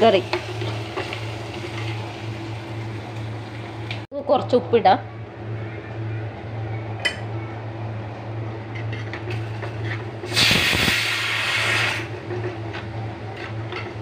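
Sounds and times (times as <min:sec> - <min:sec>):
loud hissing burst: 0:10.3 - 0:12.1.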